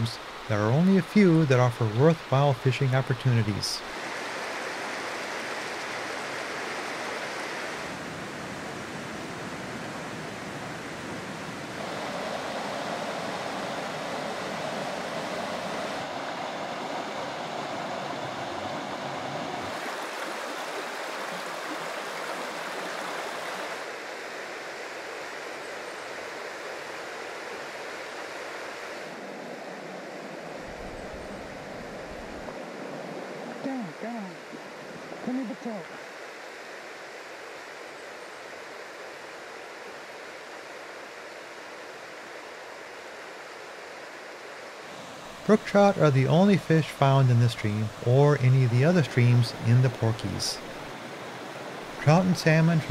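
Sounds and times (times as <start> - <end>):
stream water rushing over rocks: 0.0 - 25.5, 38.8 - 52.9.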